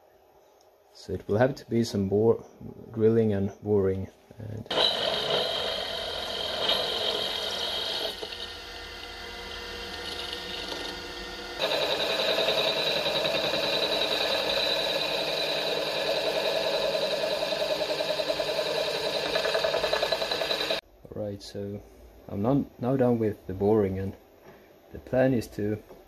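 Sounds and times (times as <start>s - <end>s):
milling machine spindle whine: 4.7s - 20.8s.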